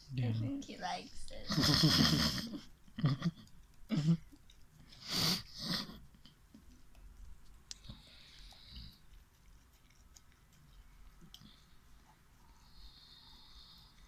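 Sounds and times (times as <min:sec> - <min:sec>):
dog licking from a tin can: 0:08.8 - 0:11.7.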